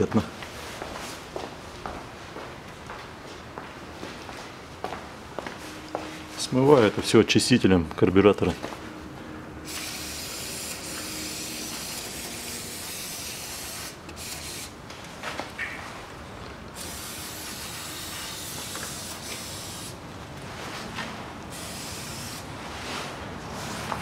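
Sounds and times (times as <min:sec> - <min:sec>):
aerosol can spraying: 0:09.7 - 0:14.7, 0:16.8 - 0:20.0, 0:21.5 - 0:22.4.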